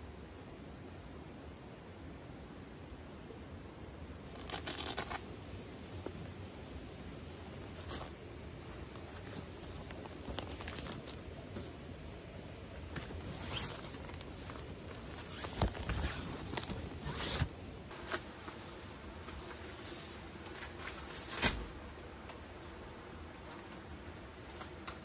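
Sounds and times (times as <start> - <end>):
zippers zipping: 13.1 - 14.2, 15.1 - 17.5.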